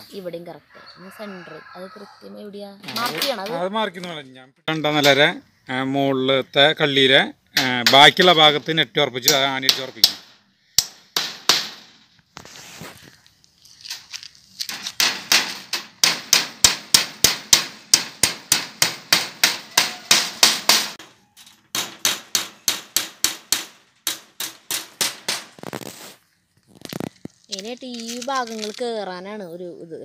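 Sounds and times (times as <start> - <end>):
hammer striking nails: 9.2 - 12.0, 14.8 - 21.1, 21.7 - 25.6.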